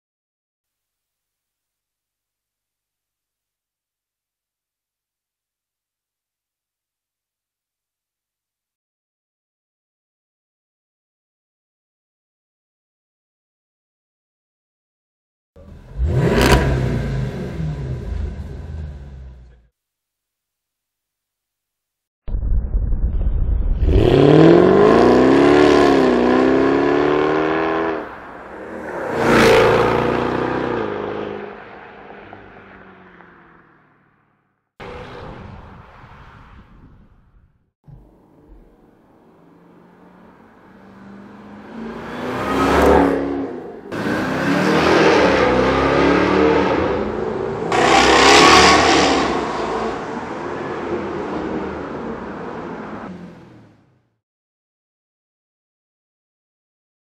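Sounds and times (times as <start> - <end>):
car engine accelerating hard: 15.6 - 19.6, 23.9 - 31.6, 37.9 - 53.9
car passing by: 26.3 - 34.0, 34.8 - 37.3, 39.4 - 53.4.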